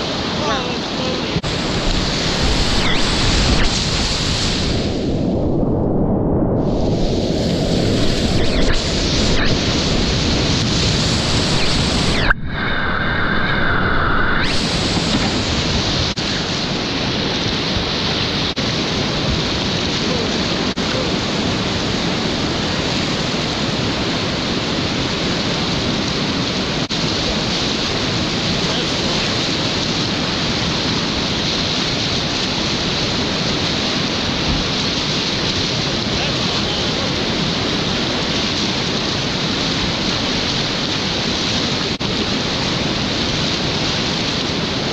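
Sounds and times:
river rapids rushing: 0.0 - 5.0, 14.5 - 44.9.

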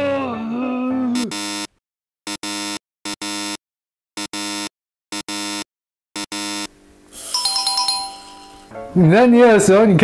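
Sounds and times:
buzzer blip and buzz: 1.3 - 1.7, 2.3 - 3.6, 4.2 - 8.7.

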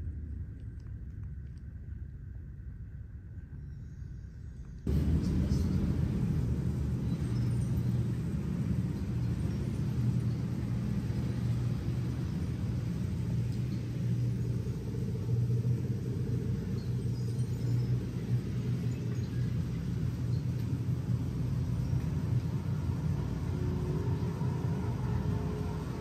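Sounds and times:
car engine and road noise: 4.9 - 18.8.

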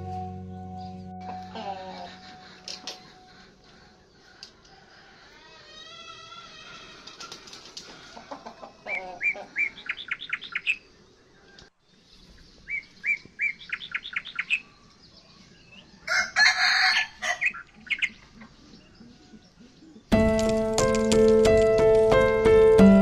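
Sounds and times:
chickens clucking: 1.2 - 5.7, 6.7 - 10.2
wing flapping: 7.0 - 8.1
small bird chirping: 7.9 - 16.0, 17.3 - 20.1.

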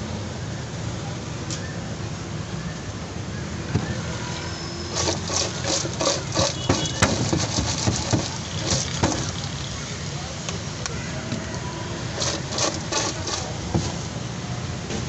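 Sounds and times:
metal tongs scraping a pot: 4.8 - 9.6, 12.1 - 13.6.

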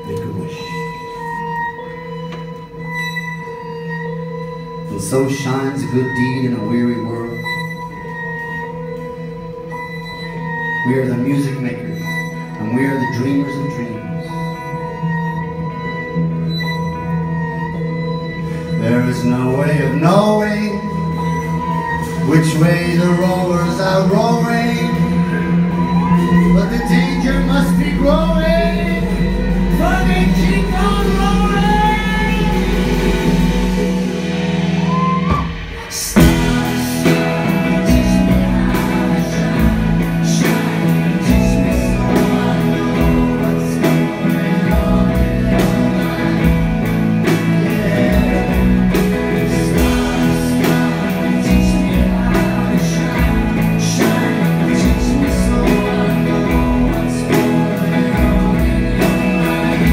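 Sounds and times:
bass: 0.0 - 59.9
drums: 0.0 - 59.9
guitar: 0.0 - 59.9
person singing: 18.5 - 59.9.

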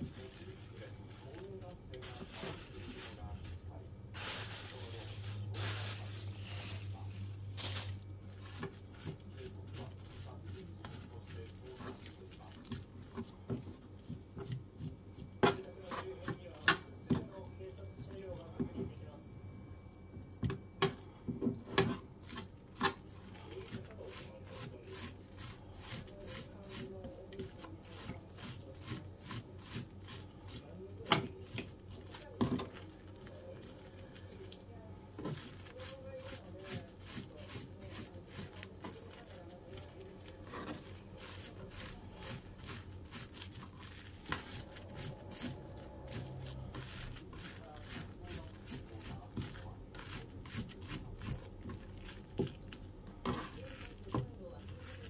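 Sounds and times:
low steady hum: 0.0 - 55.0
wet rustling of roe: 4.2 - 15.3, 31.7 - 52.9.

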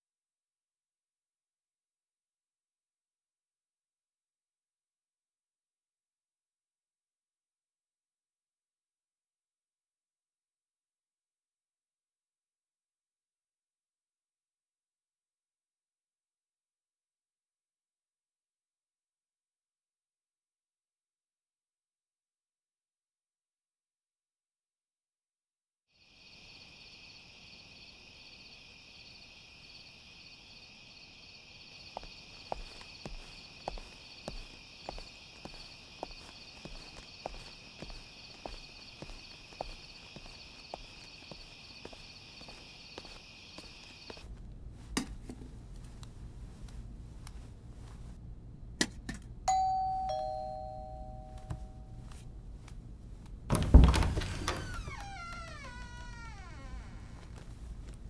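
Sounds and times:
crickets trilling: 26.0 - 44.3
shoe footsteps: 31.9 - 48.2
two-tone doorbell chime: 49.5 - 51.9.

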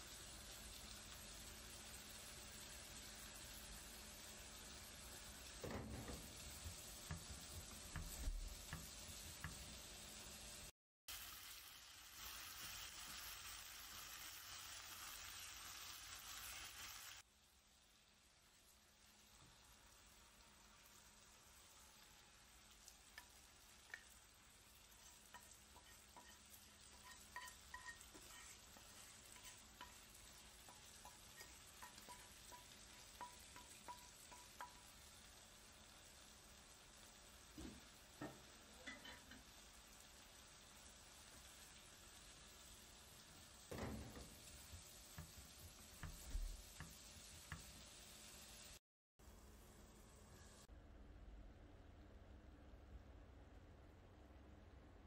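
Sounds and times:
noodles sizzling in pot: 0.0 - 50.7
faint steady hiss: 0.0 - 55.0
spatula knocking in frying pan: 5.6 - 9.7, 25.0 - 35.0, 43.7 - 47.8.

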